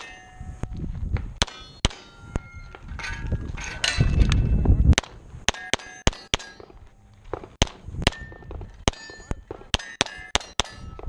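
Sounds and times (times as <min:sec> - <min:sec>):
steel plate ringing: 0:00.0 - 0:00.6, 0:01.4 - 0:04.7, 0:05.5 - 0:07.1, 0:08.1 - 0:11.0.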